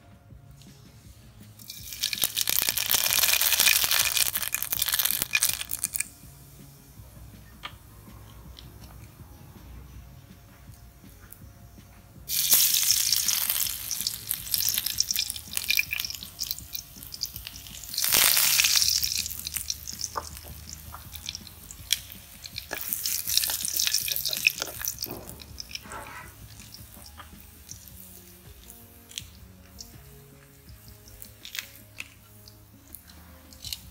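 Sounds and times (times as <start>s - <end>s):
popping crackles of oil: 1.4s - 6.2s, 12.3s - 33.9s
food sizzling in hot oil: 1.6s - 6.2s, 12.3s - 33.9s.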